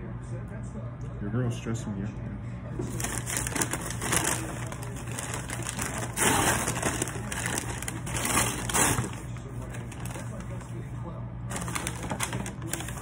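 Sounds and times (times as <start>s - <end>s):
paper bag rustling: 2.8s - 10.9s, 11.5s - 13.0s.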